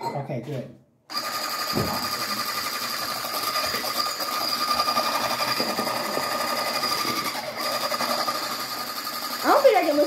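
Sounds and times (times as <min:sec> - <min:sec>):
electric hand mixer whining: 0:01.1 - 0:10.0.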